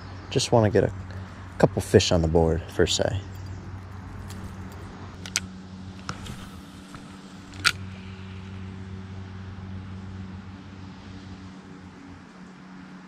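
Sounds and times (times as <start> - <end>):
low hum: 3.0 - 13.0.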